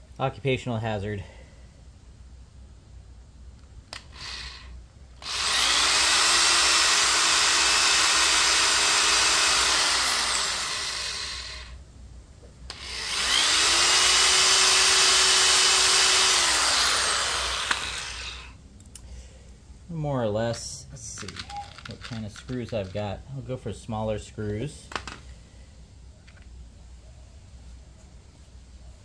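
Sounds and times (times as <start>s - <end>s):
electric drill whining into wood: 3.9s - 11.8s, 12.7s - 18.6s.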